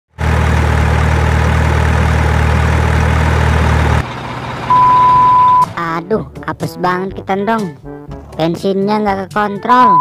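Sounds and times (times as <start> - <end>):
truck engine idling: 0.2 - 6.6
pure beep tone: 4.7 - 5.8.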